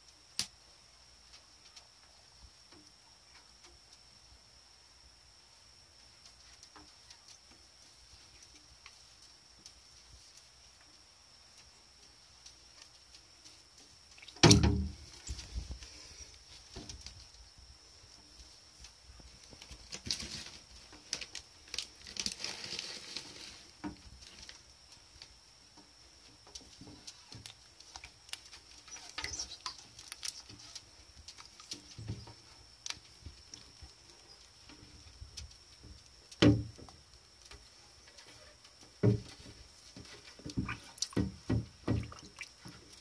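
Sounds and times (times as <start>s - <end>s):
claws and shells scraping plastic: 19.6s - 24.5s, 28.4s - 32.4s.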